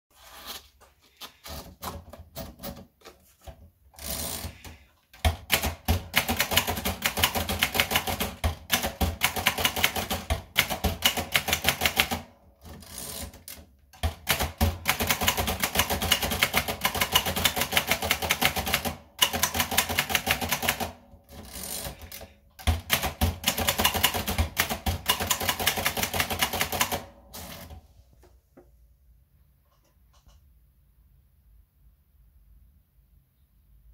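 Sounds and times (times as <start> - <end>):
rapid typewriter typing: 4.0 - 27.8.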